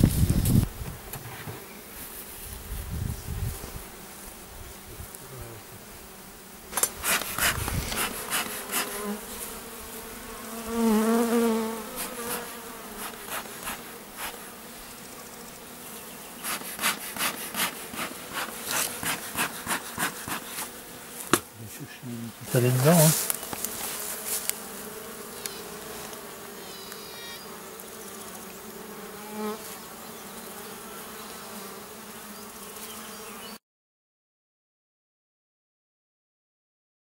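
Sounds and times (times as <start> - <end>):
honeybees buzzing: 0.0 - 33.6
handling rustles and knocks: 22.7 - 24.6.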